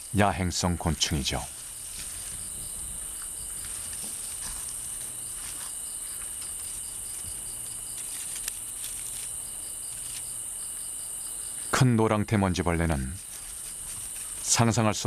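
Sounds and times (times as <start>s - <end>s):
high-pitched insect drone: 0.0s - 11.7s
pulsing cricket chirp: 0.0s - 15.0s.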